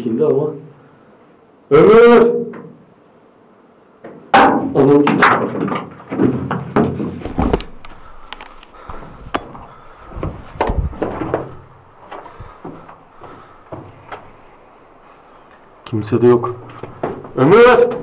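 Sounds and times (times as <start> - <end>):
heavy thuds: 4.1 - 15.8, 16.5 - 18.0.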